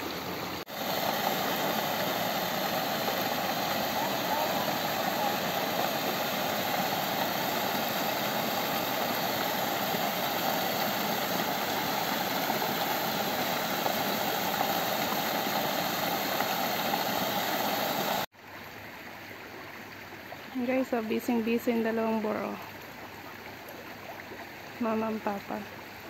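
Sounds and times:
water gushing into a pool: 0.0s - 20.4s.

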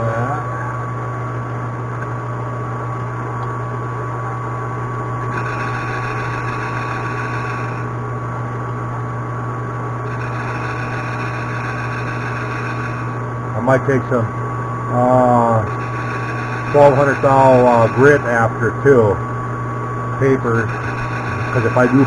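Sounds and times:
metal lathe humming: 5.2s - 8.1s, 10.0s - 22.0s.

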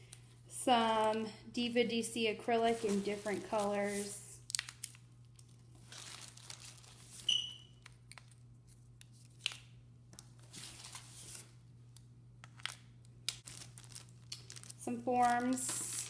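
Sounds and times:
plastic packaging crinkling: 2.6s - 9.6s, 12.4s - 16.0s.

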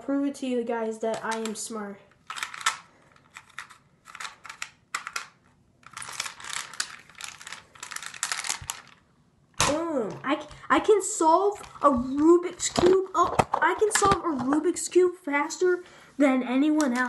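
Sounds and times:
puzzle cube layers clicking: 2.3s - 8.8s.

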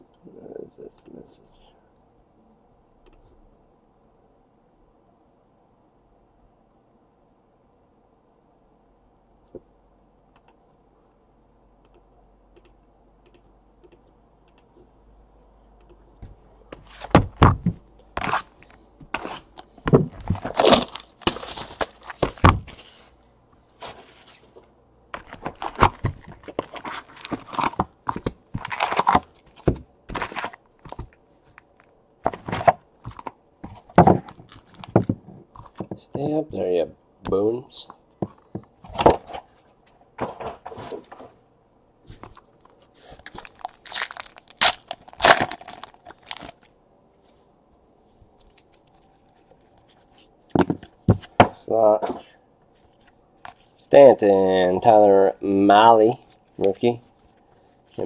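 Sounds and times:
wrapper and cardboard tearing: 19.2s - 23.1s, 25.2s - 31.1s, 34.1s - 35.0s, 43.1s - 46.7s
cardboard boxes thunking: 32.3s - 36.0s.

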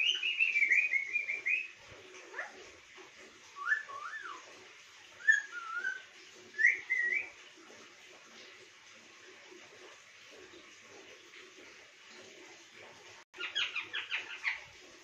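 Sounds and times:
parakeet whistling: 0.0s - 1.8s, 5.2s - 7.3s
parakeet chirping: 13.4s - 14.7s.

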